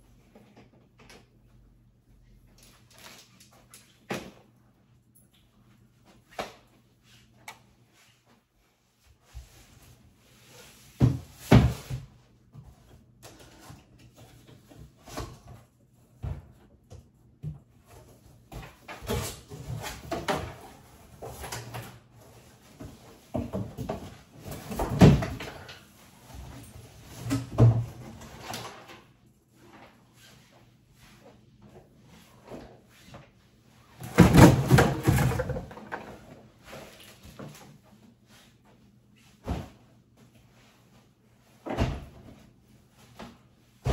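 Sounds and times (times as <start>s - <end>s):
knocks and clatters of handling: 34.0s - 37.8s.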